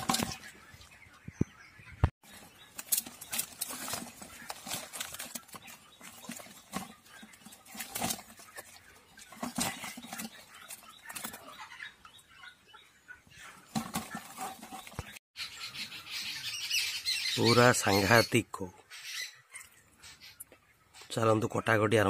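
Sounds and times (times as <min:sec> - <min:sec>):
fish flapping in a bamboo basket: 0:02.7 - 0:11.5.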